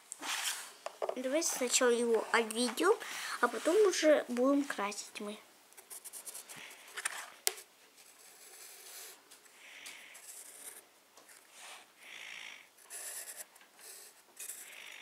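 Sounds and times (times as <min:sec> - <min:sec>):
pencil scratching on paper: 0:08.0 - 0:09.2, 0:10.2 - 0:10.8, 0:12.8 - 0:15.0.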